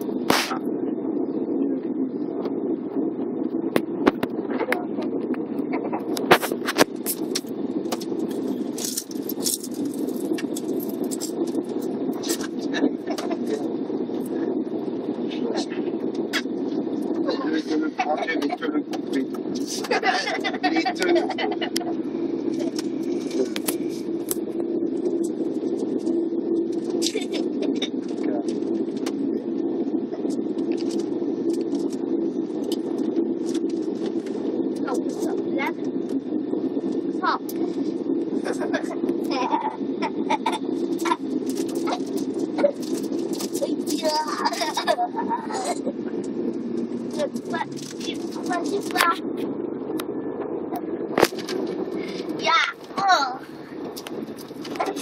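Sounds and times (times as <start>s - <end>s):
bus engine and road drone: 2.4s - 29.4s, 30.1s - 55.0s
sharp clicks and rattles: 6.1s - 12.5s.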